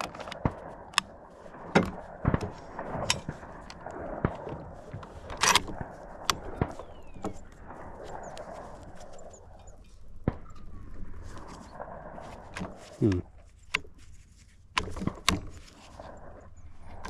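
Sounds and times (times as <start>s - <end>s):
rifle bolt clicks and knocks: 0.0s - 7.5s, 14.7s - 15.9s.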